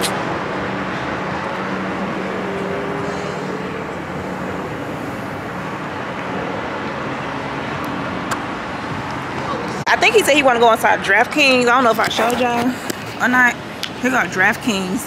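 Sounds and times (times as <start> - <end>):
sliding engine tone: 0.0 - 9.8
traffic rumble: 0.0 - 15.0.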